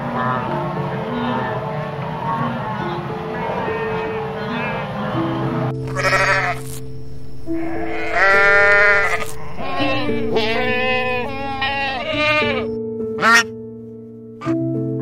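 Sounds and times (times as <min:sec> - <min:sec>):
soft piano music: 0:00.0 - 0:15.0
goats bleating: 0:03.6 - 0:05.3, 0:05.9 - 0:06.8, 0:07.6 - 0:13.5.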